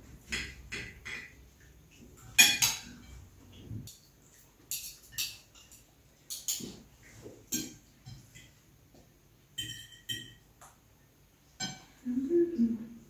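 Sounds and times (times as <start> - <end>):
cutlery clinking on plates: 2.2 - 3.3, 3.9 - 8.6, 9.5 - 10.5, 11.6 - 12.0.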